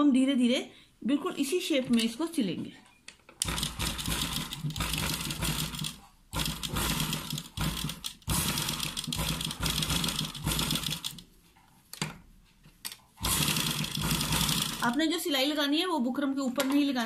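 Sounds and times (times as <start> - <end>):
sewing machine stitching: 3.4 - 11.3, 13.2 - 15.2.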